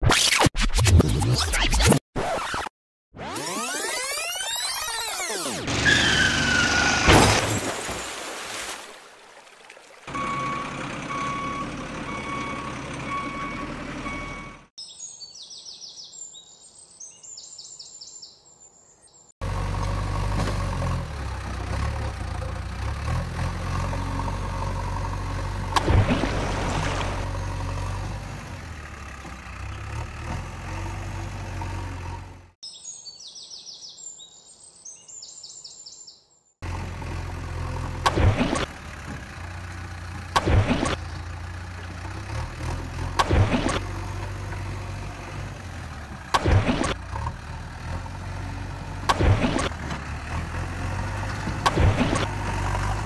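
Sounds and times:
repeated beeps: 10.1s - 14.7s
birds chirping: 14.8s - 19.3s, 32.6s - 36.6s.

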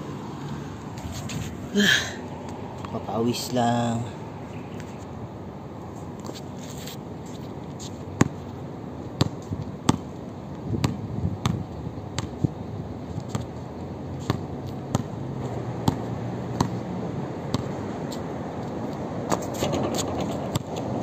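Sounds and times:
steady background noise: 0.0s - 21.0s
basketball dribbling on hard court: 10.8s - 11.6s, 15.8s - 16.8s.

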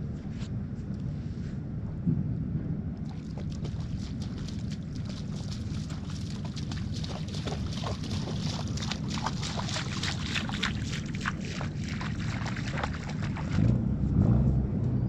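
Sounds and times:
low rumble: 0.0s - 15.0s
small waves lapping: 3.0s - 13.7s.

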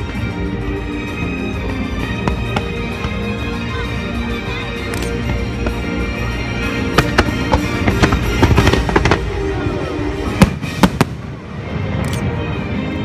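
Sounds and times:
music soundtrack: 0.0s - 13.0s
fireworks bangs and crackling: 1.5s - 3.5s, 5.1s - 12.0s.

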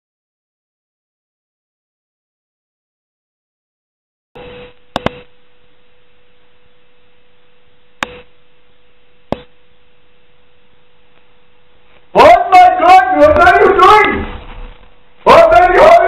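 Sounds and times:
faint electrical hum: 4.4s - 16.0s.

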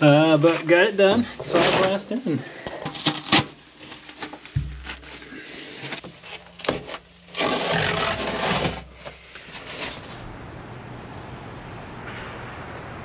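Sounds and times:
scraping against fiberglass: 0.0s - 10.2s.

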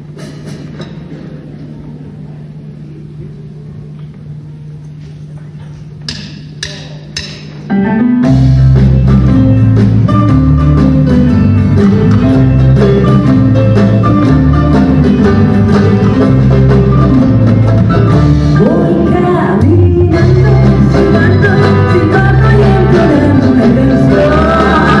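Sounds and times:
bass and drum kit: 6.0s - 25.0s
woman singing into microphone: 18.6s - 25.0s.

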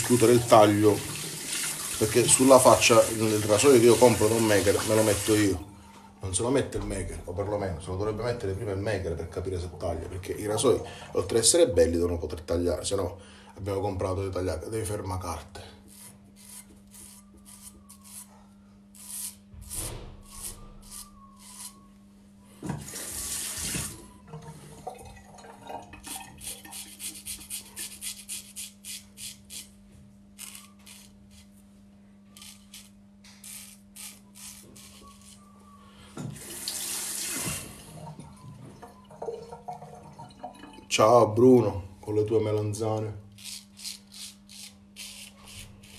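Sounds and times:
razor scraping stubble: 15.9s - 18.3s, 18.9s - 21.8s, 26.5s - 29.8s, 30.4s - 31.7s, 32.3s - 35.5s, 43.3s - 45.9s
tap running: 36.2s - 40.8s.

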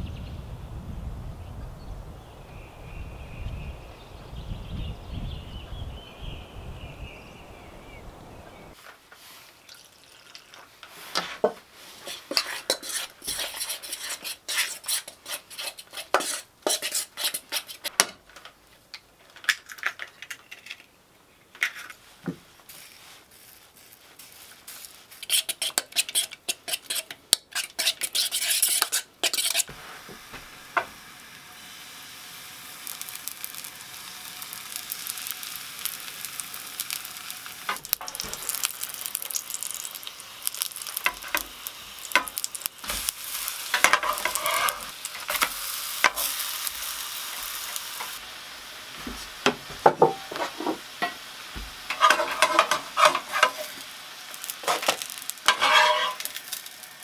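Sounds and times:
batter sizzling in frying pan: 8.7s - 18.0s, 22.4s - 57.0s
metal spoon stirring in metal pot: 12.0s - 17.9s, 25.2s - 29.7s, 37.7s - 46.4s, 51.9s - 53.8s, 54.5s - 56.7s.

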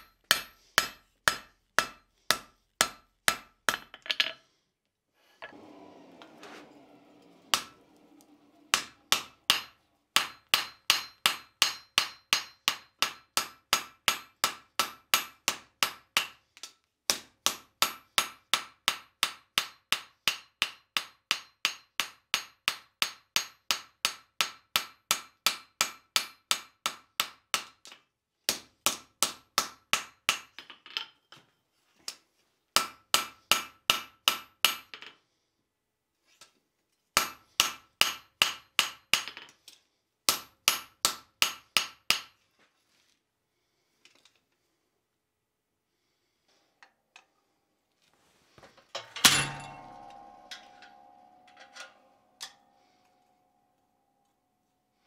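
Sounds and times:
hammer ringing on anvil: 8.7s - 15.3s, 49.0s - 53.9s.

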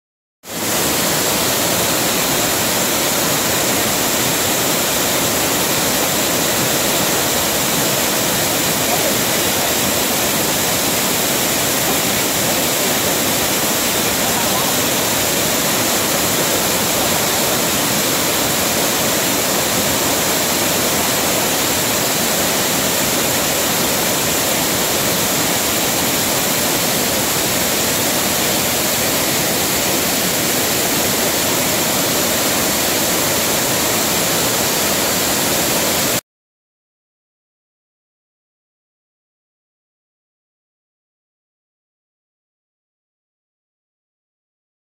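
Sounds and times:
waterfall rushing: 0.5s - 36.2s.

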